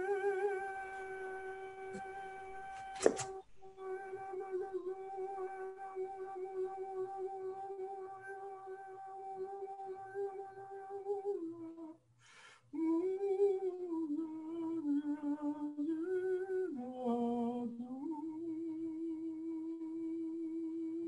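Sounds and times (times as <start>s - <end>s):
man humming long held notes: 0.0s - 2.9s, 3.6s - 12.0s, 12.8s - 21.0s
quick breath in: 12.2s - 12.7s.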